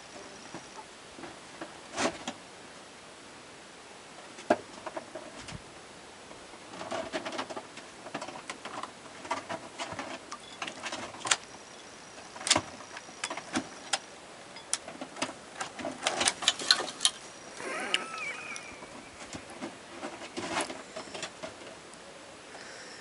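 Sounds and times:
short wavering squeak-like call: 17.5 - 19.4.

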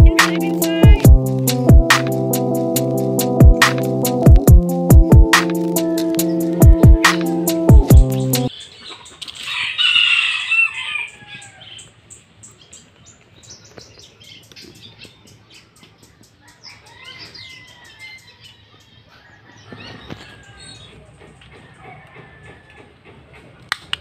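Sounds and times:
background music: 0.0 - 8.5
rooster crowing: 9.4 - 11.8, 16.5 - 20.9, 21.6 - 23.0.

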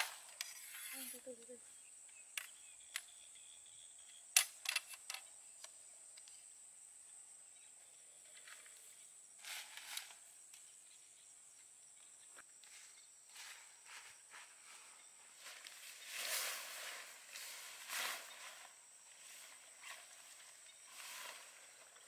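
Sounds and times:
brief rustle: 0.0 - 1.5
high insect drone: 0.0 - 22.0
metal tent poles clicking: 4.4 - 5.3.

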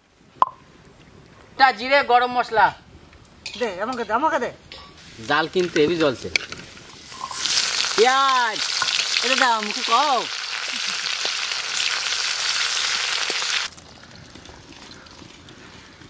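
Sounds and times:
metal spatula turning food: 3.4 - 8.1
onions sizzling in oil: 4.8 - 13.8.

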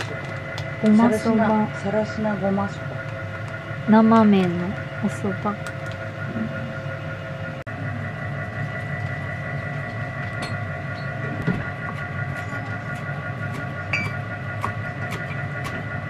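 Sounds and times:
kitchen appliance humming: 0.0 - 16.0.

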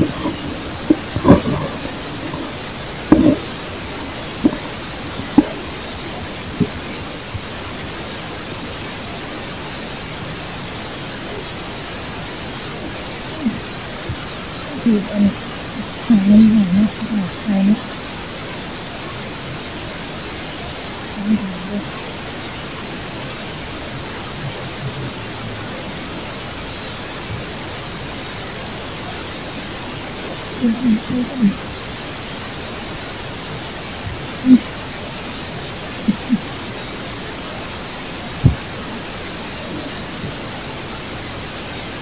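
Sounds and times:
faint low bumps: 0.0 - 7.8
steady hiss: 0.0 - 42.0.

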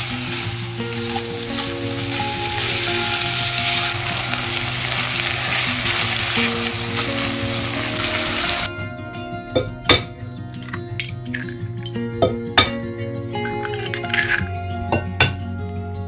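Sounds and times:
meat sizzling in a frying pan: 0.0 - 8.7
soft background music: 0.0 - 16.0.

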